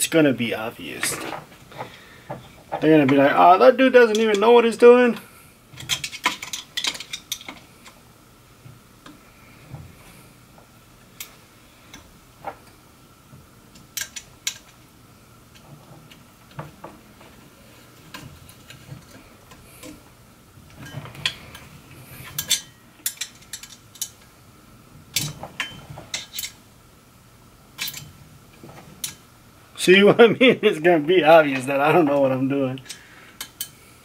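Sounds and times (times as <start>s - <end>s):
small metal parts clinking: 5.8s - 8.0s, 22.3s - 24.3s, 27.8s - 28.1s.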